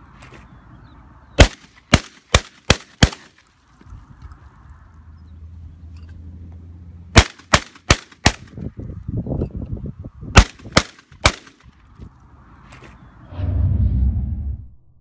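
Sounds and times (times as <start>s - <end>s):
shotgun shots: 1.4s - 3.4s, 7.2s - 8.6s, 10.4s - 11.6s
low rumble: 13.2s - 15.0s.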